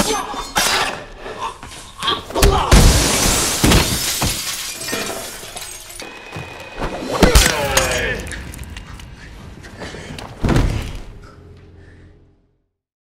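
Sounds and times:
glass pane shattering: 2.8 - 6.0
glass shards tinkling: 3.9 - 6.0.

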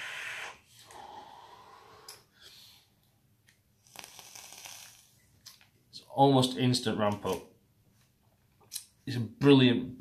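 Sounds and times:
breathy exhale: 0.0 - 3.0.

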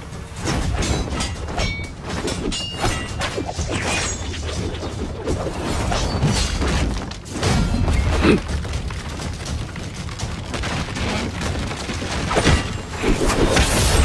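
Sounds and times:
metal clashes: 0.1 - 8.6
swishing swings: 0.4 - 6.8.

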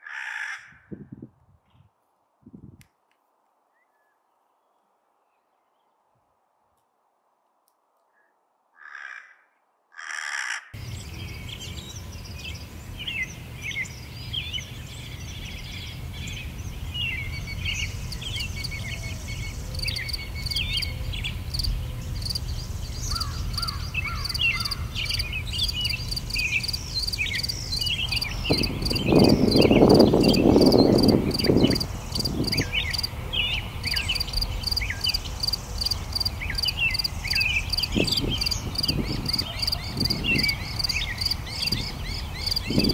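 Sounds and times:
crow cawing: 0.0 - 0.8, 8.8 - 10.8, 23.1 - 25.2
songbirds chirping: 10.8 - 42.9
steady low rumble: 10.8 - 42.9.

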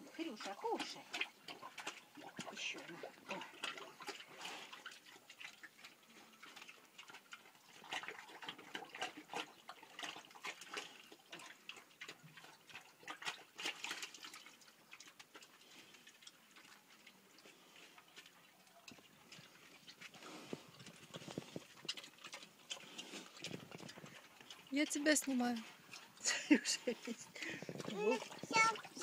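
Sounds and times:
pig chewing and slurping: 0.0 - 29.0.

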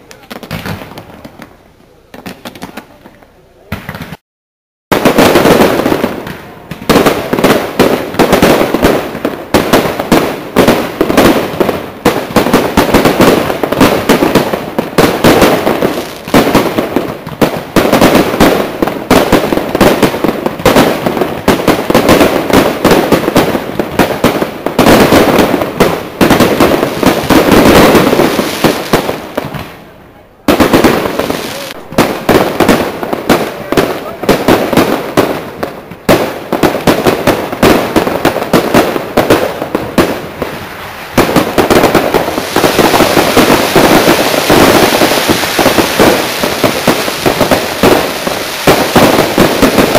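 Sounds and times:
fireworks shells bursting: 40.6 - 49.9.

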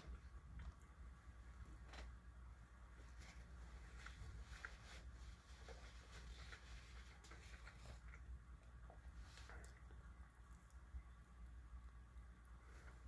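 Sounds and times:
low steady hum: 0.0 - 13.0
faint chewing: 3.0 - 11.4.

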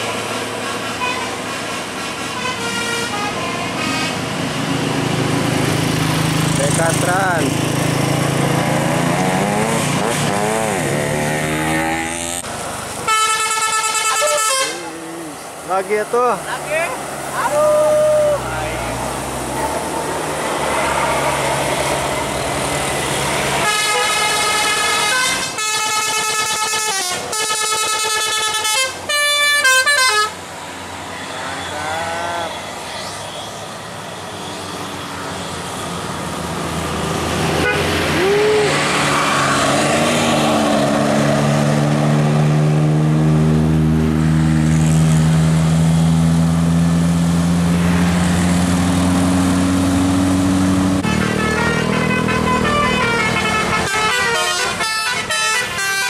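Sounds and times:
musical air horn tune: 2.3 - 4.2, 13.1 - 14.9, 23.6 - 30.4, 51.0 - 56.0.

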